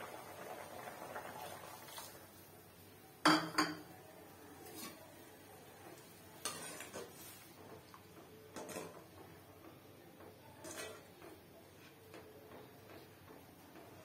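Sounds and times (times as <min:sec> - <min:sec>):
ladle scraping metal pot: 0:06.4 - 0:07.4, 0:08.6 - 0:09.0, 0:10.6 - 0:11.1.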